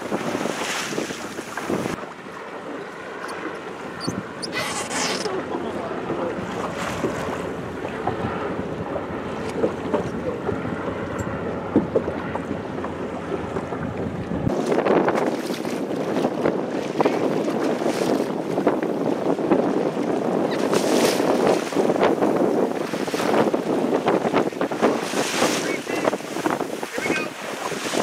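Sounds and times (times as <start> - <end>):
water sloshing against boat hull: 0.0 - 28.0
wind on microphone: 0.0 - 28.0.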